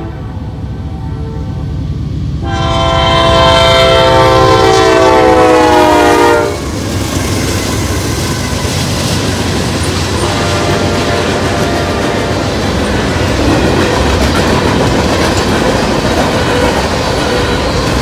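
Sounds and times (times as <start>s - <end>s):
locomotive air horn chord: 0.0s - 1.6s, 2.4s - 6.6s, 10.2s - 12.4s
freight cars rumbling and rattling: 6.6s - 18.0s.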